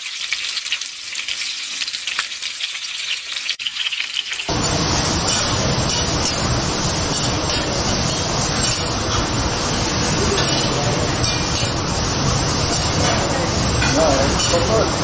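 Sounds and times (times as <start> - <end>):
food sizzling on a griddle: 0.0 - 15.0
steady low rumble: 4.5 - 15.0
metal spatulas scraping: 5.2 - 6.5, 7.1 - 9.3, 10.3 - 14.7.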